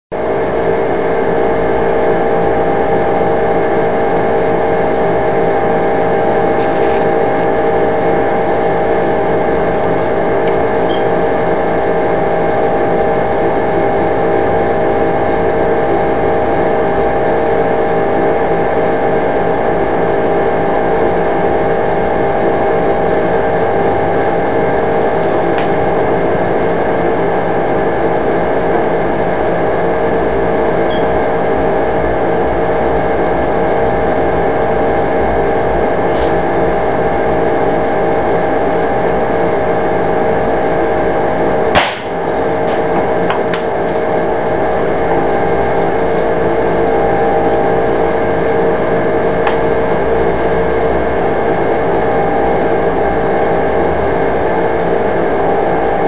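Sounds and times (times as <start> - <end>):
steady machine hum: 0.1 - 56.0
air rifle shot: 41.8 - 42.3.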